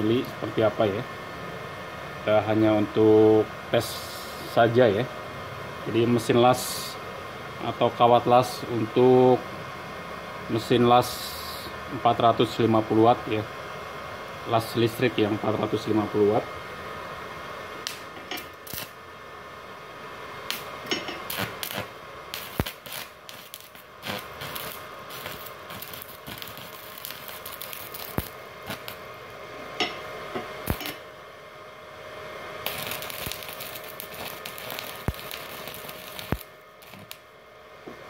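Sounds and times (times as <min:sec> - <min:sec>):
welding arc crackling and sputtering: 0:17.8 - 0:19.0, 0:20.4 - 0:29.9, 0:30.6 - 0:31.1, 0:32.6 - 0:37.3.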